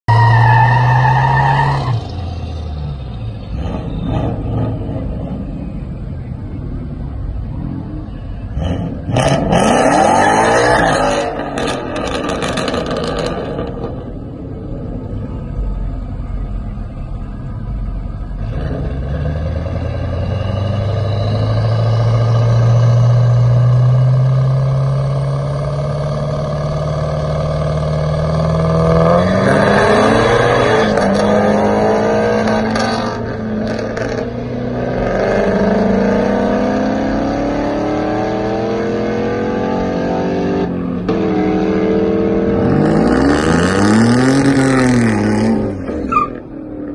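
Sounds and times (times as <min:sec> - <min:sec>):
drag race engines revving: 0:00.1 - 0:46.9.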